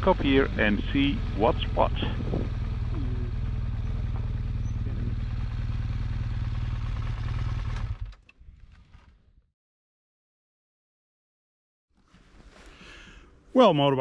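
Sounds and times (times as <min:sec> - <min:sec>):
faint engine clicks: 0:00.0 - 0:09.2
motorcycle engine running: 0:00.0 - 0:09.2.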